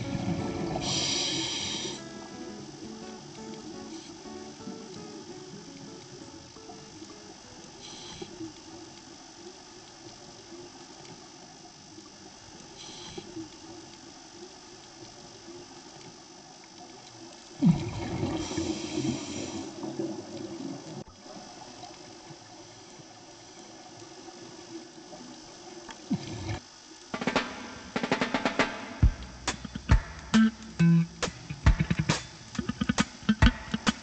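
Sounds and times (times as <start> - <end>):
scuba exhaust bubbles rushing: 0.0 - 12.2, 17.6 - 22.6
faint steady underwater hiss: 0.0 - 34.0.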